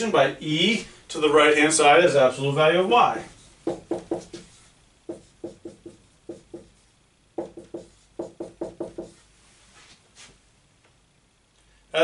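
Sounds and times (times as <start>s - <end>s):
marker tapping on whiteboard: 3.6s - 6.8s, 7.4s - 9.2s.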